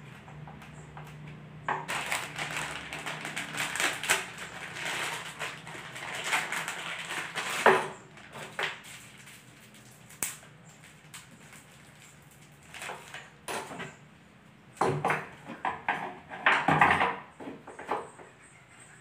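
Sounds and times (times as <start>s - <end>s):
wood chips scraping: 1.7s - 13.4s
plastic bag crinkling: 1.8s - 13.4s.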